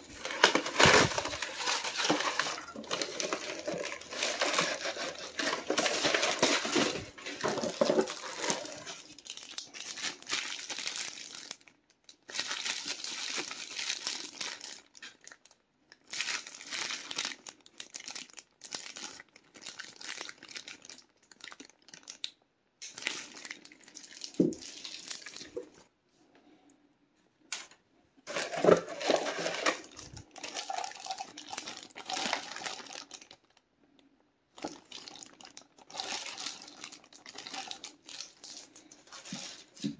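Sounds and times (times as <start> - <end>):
paper and plastic wrap crinkling: 0.0 - 25.8, 28.3 - 33.6, 34.6 - 39.9.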